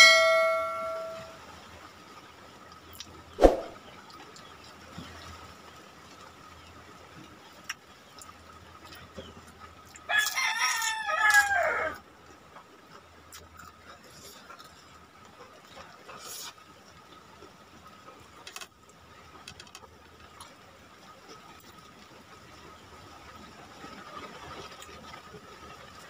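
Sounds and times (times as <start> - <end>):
rooster crowing: 10.1 - 12.0.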